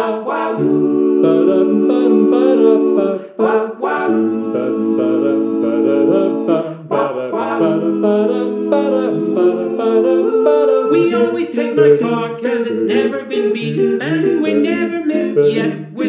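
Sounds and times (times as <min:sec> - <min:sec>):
male quartet singing a cappella: 0:00.0 - 0:16.0
singers breathing: 0:03.1 - 0:03.4, 0:06.6 - 0:06.9.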